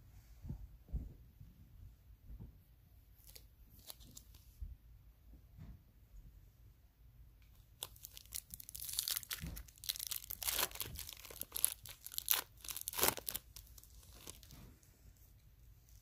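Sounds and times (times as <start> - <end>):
foil wrapper tearing and crinkling: 7.8 - 14.5.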